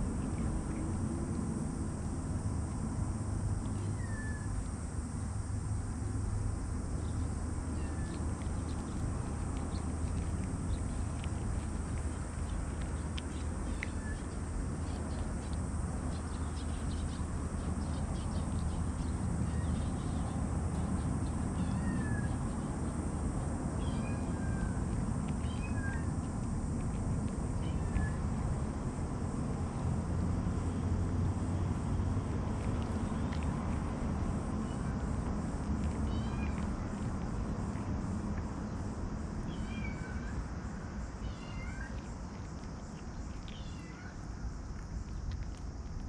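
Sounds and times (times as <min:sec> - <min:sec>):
steady low rumble: 0:00.0 - 0:41.2
cats crunching dry kibble: 0:00.0 - 0:46.0
cat meowing: 0:21.6 - 0:22.4, 0:23.8 - 0:24.8, 0:25.4 - 0:26.1, 0:27.6 - 0:28.2, 0:36.1 - 0:36.7, 0:39.5 - 0:40.4, 0:41.2 - 0:42.0, 0:43.4 - 0:44.2.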